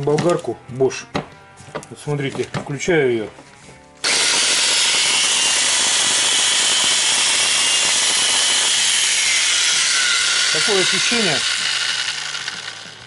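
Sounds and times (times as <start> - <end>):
angle grinder running: 4.0 - 13.0.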